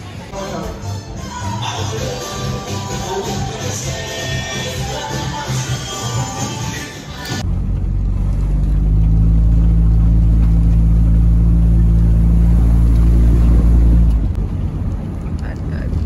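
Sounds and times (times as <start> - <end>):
car engine drone from inside: 7.4 - 16.0.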